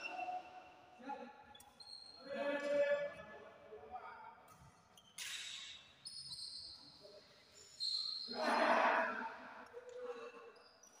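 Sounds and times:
shoes squeaking on court floor: 0:01.5 - 0:02.2, 0:04.9 - 0:07.0, 0:07.6 - 0:08.3.

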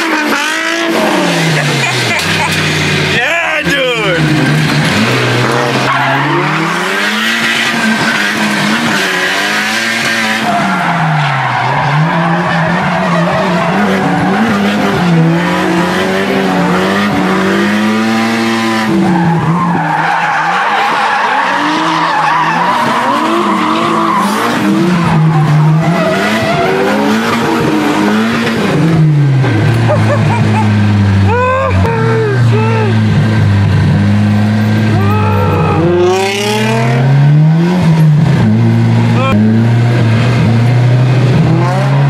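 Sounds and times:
car engine revving: 0:00.0 - 0:42.0
tyres screeching: 0:10.0 - 0:17.3, 0:18.8 - 0:28.8.

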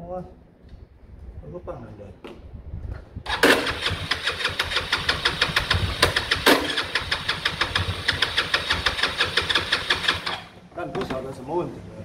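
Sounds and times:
scooter engine struggling to start: 0:03.3 - 0:10.6.

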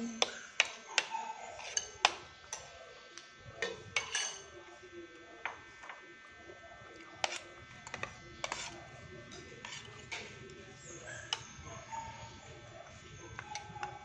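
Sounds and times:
cutlery clinking on a plate: 0:00.2 - 0:02.7, 0:03.6 - 0:04.6.

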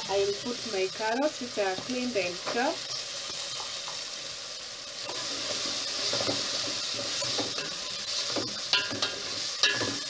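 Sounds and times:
vegetables sizzling in oil: 0:00.0 - 0:10.0
wooden spoon stirring and scraping: 0:05.1 - 0:10.0
spoon knocking metal pot: 0:08.4 - 0:10.0.

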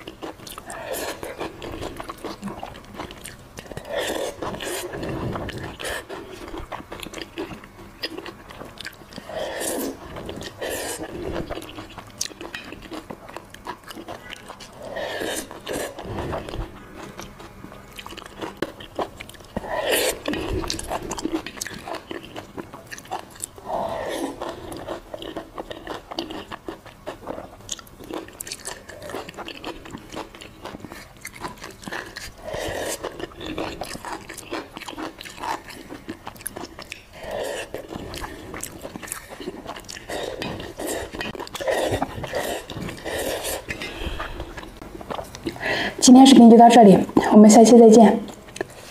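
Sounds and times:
chewing food: 0:00.0 - 0:46.0, 0:48.1 - 0:48.9.

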